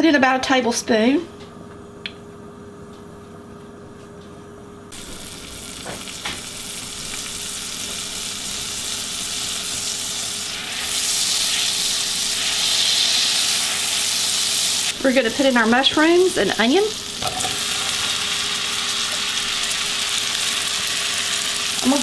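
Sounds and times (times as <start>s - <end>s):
butter sizzling in a skillet: 4.9s - 15.7s, 16.3s - 22.0s.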